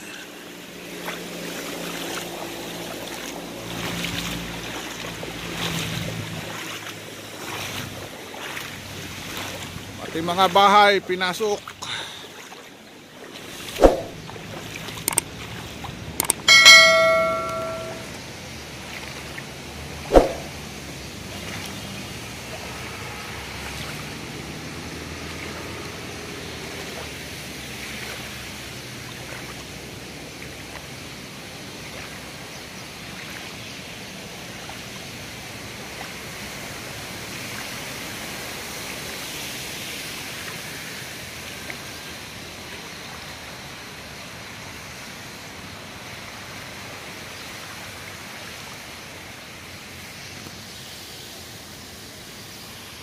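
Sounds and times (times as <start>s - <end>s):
steady rushing outdoor noise: 0.0s - 53.0s
sharp click: 13.8s - 14.1s, 16.2s - 18.0s, 20.1s - 20.5s.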